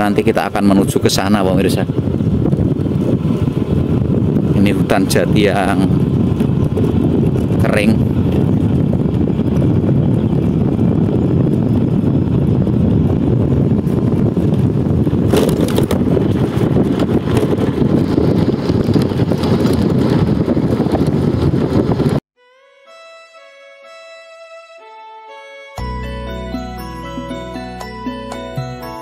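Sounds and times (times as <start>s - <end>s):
wind rumble on microphone: 0.0s - 22.2s
vehicle running: 1.4s - 22.1s, 25.8s - 29.0s.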